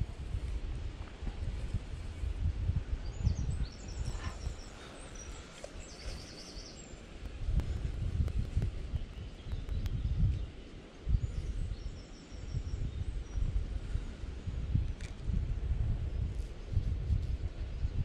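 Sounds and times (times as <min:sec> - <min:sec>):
wind rumble on microphone: 0:00.0 - 0:18.0
microphone handling noise: 0:07.2 - 0:10.5.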